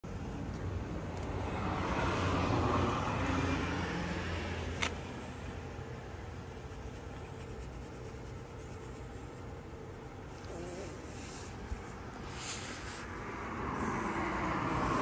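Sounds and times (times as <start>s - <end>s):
car passing by: 1.0s - 4.8s, 12.2s - 15.0s.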